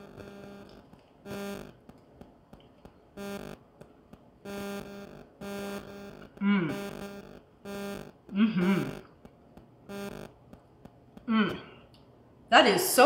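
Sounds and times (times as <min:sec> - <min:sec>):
faint chewing clicks: 0:00.6 - 0:03.0
woman humming: 0:06.4 - 0:06.9, 0:08.3 - 0:09.1, 0:11.2 - 0:11.8.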